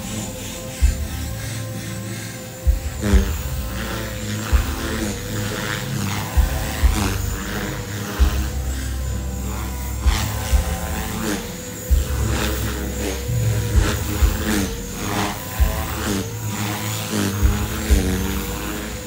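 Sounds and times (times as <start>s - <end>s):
rc helicopter rotor whine: 0.0s - 19.0s
low thumps: 11.9s - 16.4s.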